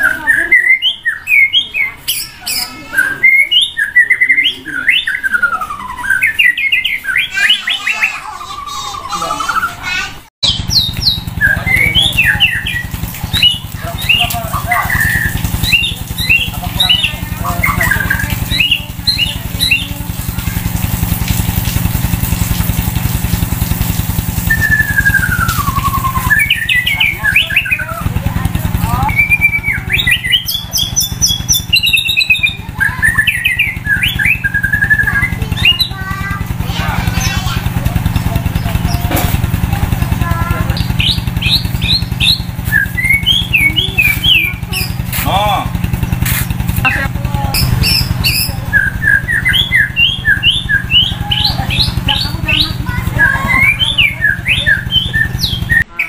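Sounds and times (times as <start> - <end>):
bird singing whistled notes: 0.0 - 8.2, 10.4 - 19.9, 24.4 - 36.0, 40.8 - 45.3, 47.6 - 56.0
small engine throbbing: 0.0 - 56.0.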